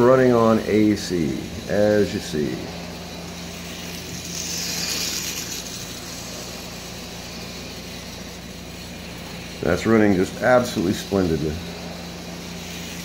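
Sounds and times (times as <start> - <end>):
motor humming: 0.0 - 13.0
toy train rattling on track: 0.0 - 13.0.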